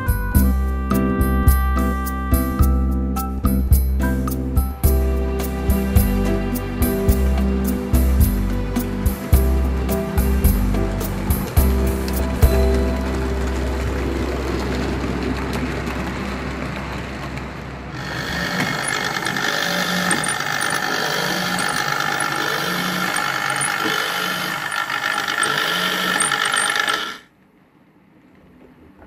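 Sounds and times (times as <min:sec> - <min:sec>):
mechanical rumble and hum: 0:04.9 - 0:29.0
turntable drive geared whine: 0:11.5 - 0:27.3.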